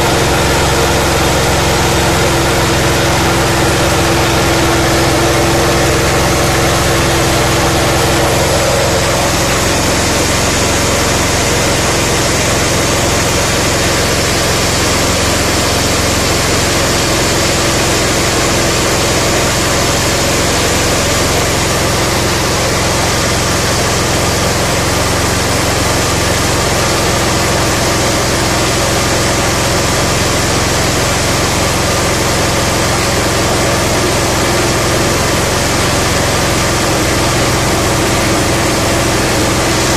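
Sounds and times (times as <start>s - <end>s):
grain rattling through huller: 0.0s - 19.2s
small engine running: 0.0s - 39.9s.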